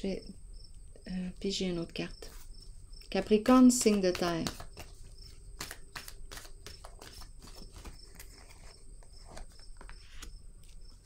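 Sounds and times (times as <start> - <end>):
crickets chirping: 0.0 - 11.0
cards being shuffled: 3.7 - 11.0.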